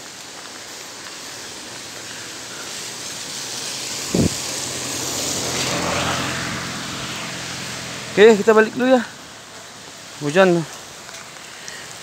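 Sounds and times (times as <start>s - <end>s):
car tyres on wet road: 0.0s - 12.0s
steady rain hiss: 0.0s - 12.0s.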